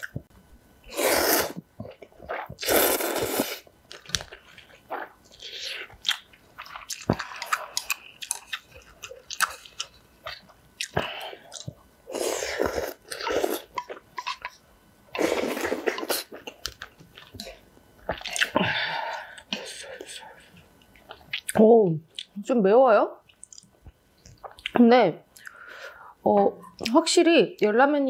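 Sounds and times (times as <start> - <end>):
noodle slurps: 0.9 - 1.6, 2.3 - 3.6
wet chewing: 3.9 - 11.8.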